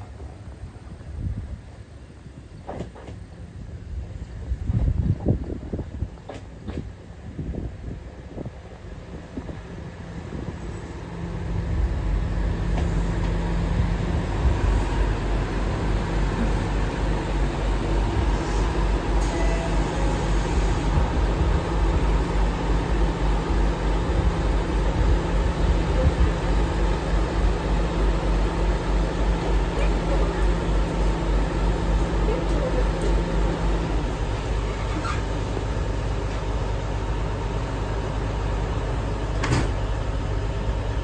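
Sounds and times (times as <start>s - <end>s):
diesel railcar engine rumbling: 0.0s - 41.0s.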